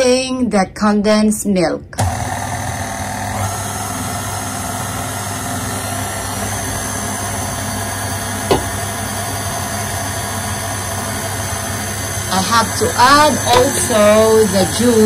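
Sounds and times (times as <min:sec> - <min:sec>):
stand mixer motor humming: 0:02.0 - 0:15.0
brief knock: 0:08.5 - 0:08.7.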